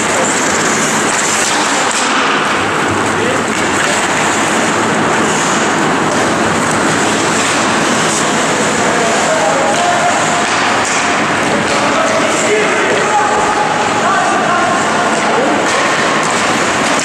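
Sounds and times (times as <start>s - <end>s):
spectators' voices: 0.0s - 17.0s
skates on ice: 3.4s - 13.6s.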